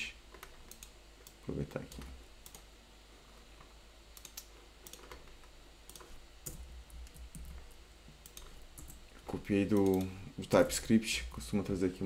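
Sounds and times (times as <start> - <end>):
keyboard and mouse clicks: 0.3 - 2.7, 4.1 - 10.2.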